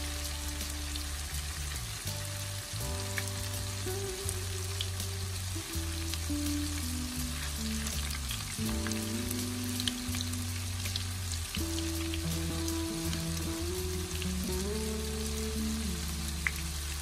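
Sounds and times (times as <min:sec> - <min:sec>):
oil sizzling in a pan: 0:00.0 - 0:17.0.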